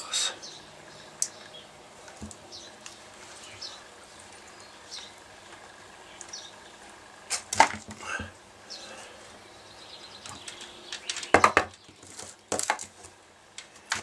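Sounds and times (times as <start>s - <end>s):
light rustling of wires: 1.2s - 8.3s, 10.2s - 14.0s.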